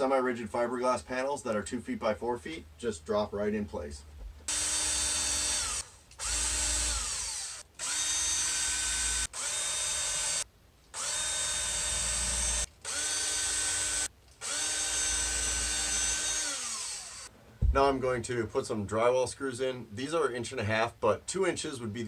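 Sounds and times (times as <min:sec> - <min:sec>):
cordless drill whining: 0:04.5 - 0:17.3.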